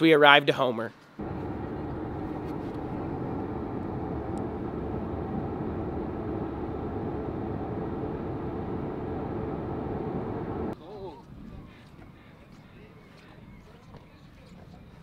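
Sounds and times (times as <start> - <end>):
car road and engine noise: 1.2 - 10.8.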